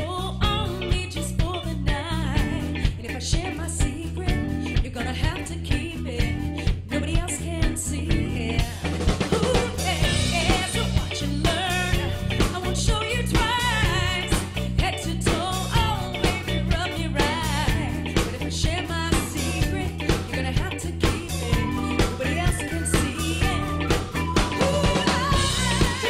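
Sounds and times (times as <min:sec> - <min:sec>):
band playing upbeat song: 0:00.0 - 0:26.0
bass line: 0:00.0 - 0:26.0
drum kit: 0:00.0 - 0:26.0
lead singer singing: 0:06.9 - 0:26.0.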